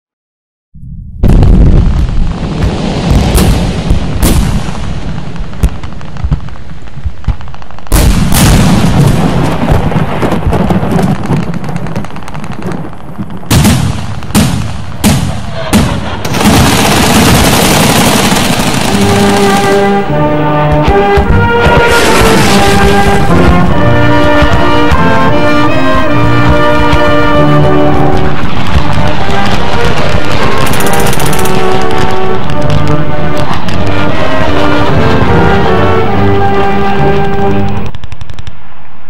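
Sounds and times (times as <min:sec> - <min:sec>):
heavy shots and explosions: 0:00.8 - 0:39.0
cannon fire: 0:01.2 - 0:38.7
steady rushing noise: 0:01.3 - 0:39.0
brass music: 0:15.2 - 0:37.9.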